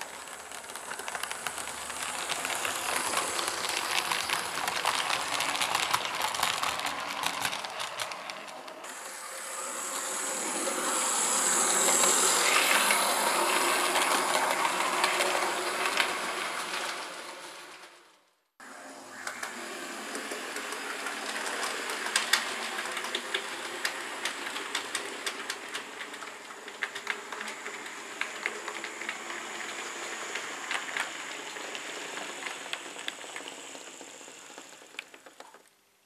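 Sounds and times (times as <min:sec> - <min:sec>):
wheels clicking over rail joints: 0:00.0 - 0:09.0, 0:19.1 - 0:35.8
model train motor whirring: 0:00.0 - 0:18.1, 0:19.2 - 0:35.7.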